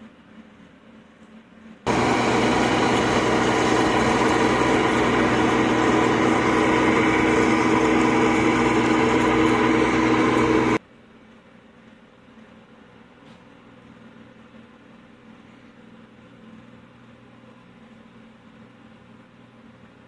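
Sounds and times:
combine harvester engine droning: 1.9 - 10.8.

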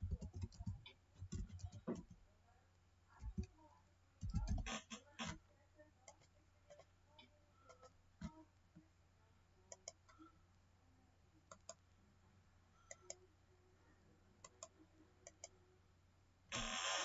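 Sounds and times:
computer mouse clicks: 9.7 - 10.2, 11.5 - 11.8, 14.4 - 15.6.

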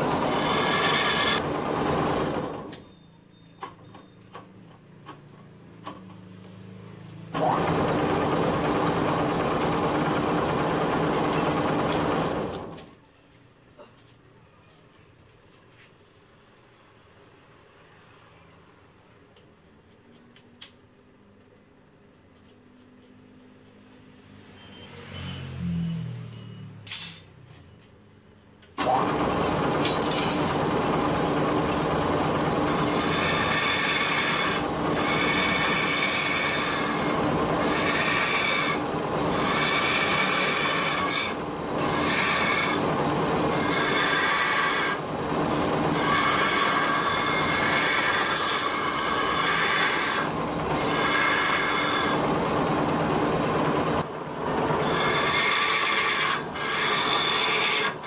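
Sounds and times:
lathe gouge scraping wood: 0.0 - 1.4, 31.5 - 52.3, 54.7 - 58.0.

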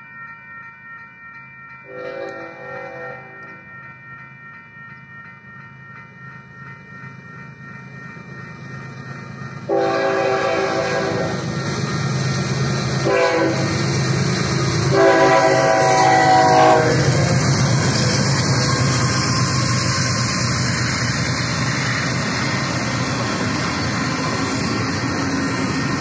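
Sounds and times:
railroad crossing bells ringing: 0.0 - 26.0
locomotive air horn blasts: 1.9 - 3.3, 9.7 - 11.4, 13.0 - 13.8, 14.9 - 17.2
train rumble: 5.9 - 26.0.

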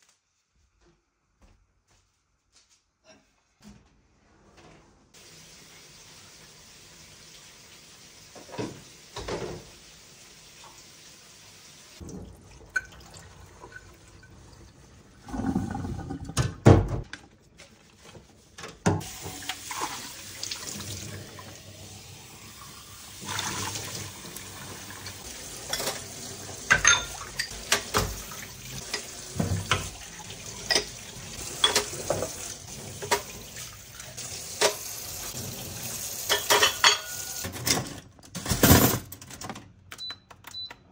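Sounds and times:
tap water running: 5.2 - 17.1, 18.8 - 37.5
dishes and utensils clinking: 25.6 - 28.2, 30.6 - 32.4, 36.2 - 39.1.

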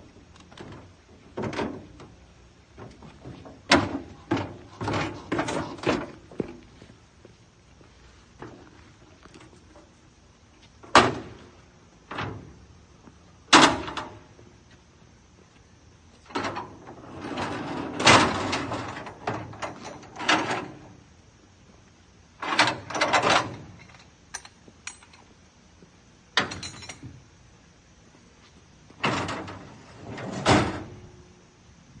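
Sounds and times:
metal clanking rattling and scraping: 2.8 - 6.6, 16.3 - 20.9, 22.4 - 25.2, 29.0 - 31.0.

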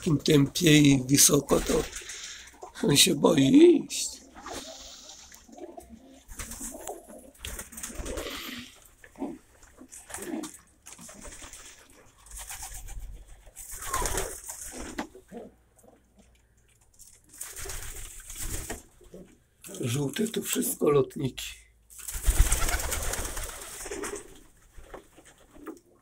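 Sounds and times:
pigeons cooing: 4.2 - 12.1, 13.7 - 16.2.

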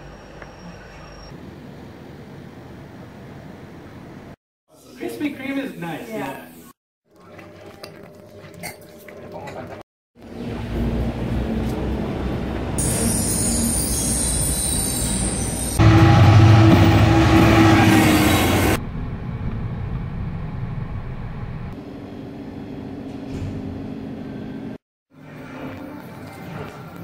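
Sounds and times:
diesel locomotive passing: 10.2 - 22.8.

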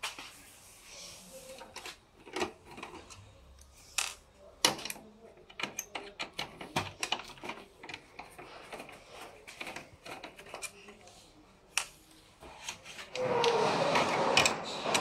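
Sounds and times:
hard plastic parts clicking: 1.7 - 11.1.

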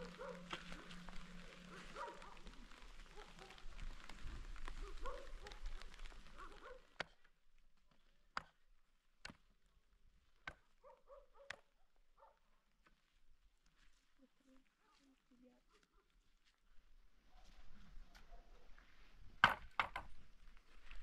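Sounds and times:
rustling: 0.0 - 7.0.

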